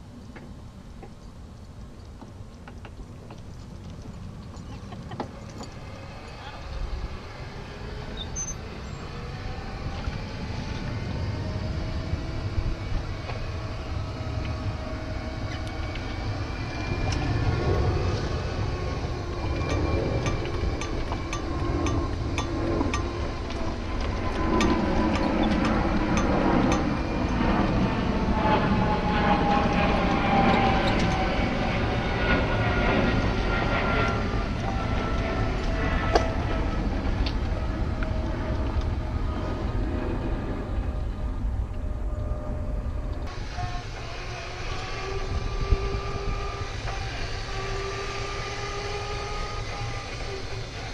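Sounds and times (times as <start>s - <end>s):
faint motor whine: 0.0s - 50.9s
golf cart rumbling on pavement: 1.8s - 11.2s.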